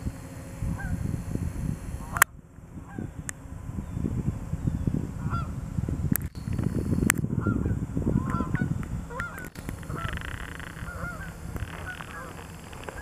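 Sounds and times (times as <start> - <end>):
low rumble: 0.0 - 13.0
geese honking: 5.2 - 5.6, 7.4 - 13.0.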